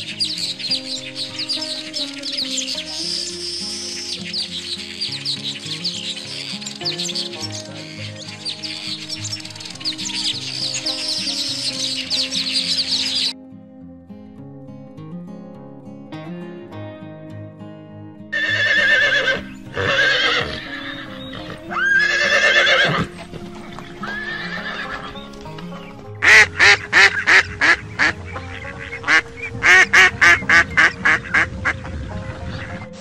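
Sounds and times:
background music: 0:00.0 - 0:33.0
horse whinnying: 0:18.4 - 0:23.2, 0:24.0 - 0:25.2
duck quacking: 0:24.4 - 0:33.0.

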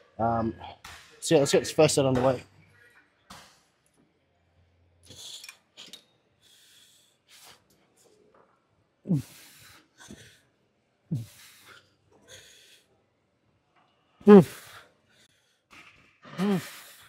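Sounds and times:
man grunting: 0:09.1 - 0:09.4, 0:14.2 - 0:14.6, 0:16.4 - 0:16.8
man breathing hard: 0:09.1 - 0:12.9, 0:16.4 - 0:17.0.

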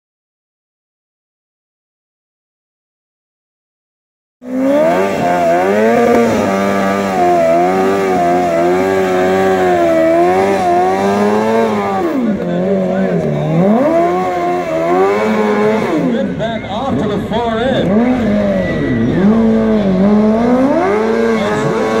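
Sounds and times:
motorcycle engine revving: 0:04.4 - 0:22.0.

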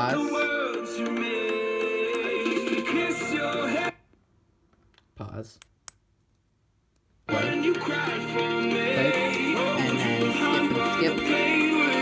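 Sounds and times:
music from small speaker: 0:00.0 - 0:04.0, 0:07.3 - 0:12.0.

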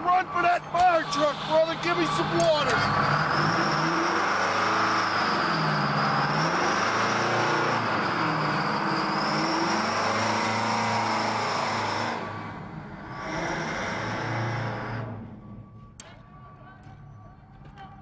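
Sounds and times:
steady high whine: 0:00.0 - 0:04.2
fire engine motor running: 0:00.0 - 0:18.0.

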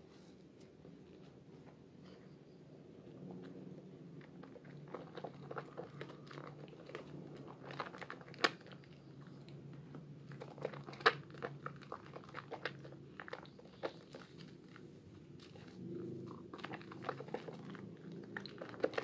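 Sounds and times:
wet soap squelching: 0:10.4 - 0:19.0.

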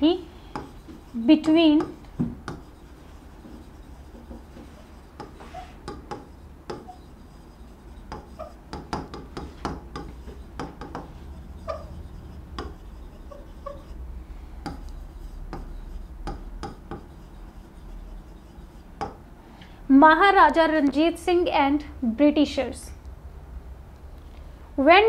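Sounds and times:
low steady hum: 0:00.0 - 0:25.0
stylus tapping and scratching glass: 0:00.5 - 0:14.0, 0:14.6 - 0:19.2.

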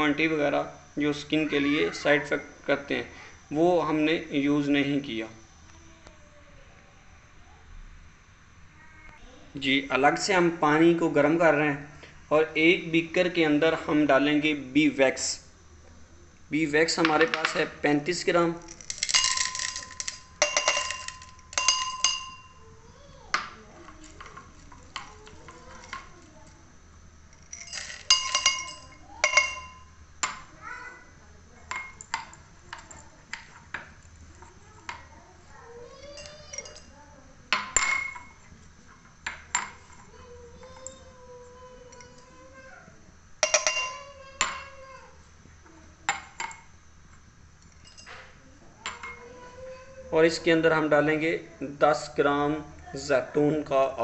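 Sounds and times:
wax pellets clinking into glass: 0:18.6 - 0:22.6, 0:27.3 - 0:29.9
glass clinking: 0:18.7 - 0:22.7, 0:27.3 - 0:30.5, 0:31.7 - 0:33.9, 0:36.1 - 0:36.9, 0:37.5 - 0:38.5, 0:39.2 - 0:41.1, 0:43.4 - 0:44.8, 0:46.1 - 0:46.7, 0:47.6 - 0:49.2.

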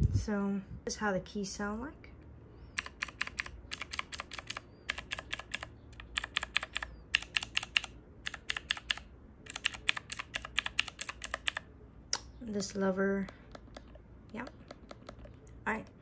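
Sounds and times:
mechanical keys clicking: 0:02.8 - 0:11.6.

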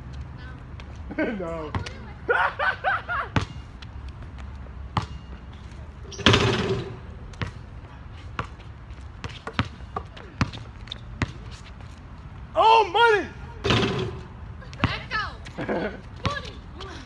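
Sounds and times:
basketball bouncing on hard court: 0:03.4 - 0:03.6, 0:05.0 - 0:05.4, 0:06.1 - 0:07.6, 0:09.2 - 0:11.5, 0:13.6 - 0:15.1.

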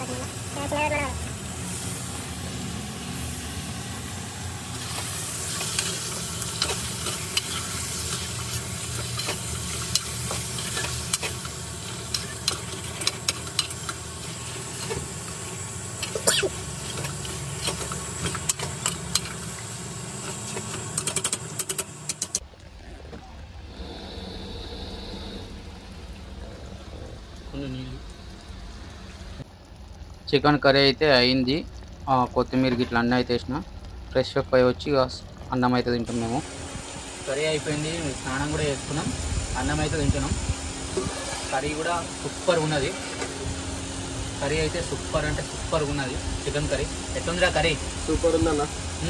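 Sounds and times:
curry sizzling in a metal pot: 0:00.0 - 0:22.4, 0:27.5 - 0:49.0
metal spoon scraping a pot: 0:41.0 - 0:41.6.

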